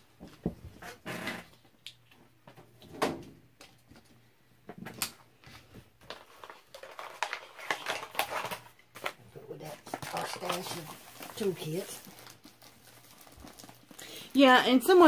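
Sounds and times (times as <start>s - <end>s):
paper packet crinkling: 6.0s - 14.5s.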